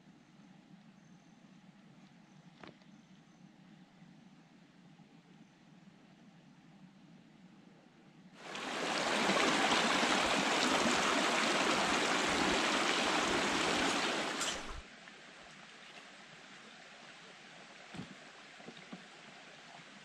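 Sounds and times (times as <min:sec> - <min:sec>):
creek running over rocks: 0:08.4 - 0:20.0.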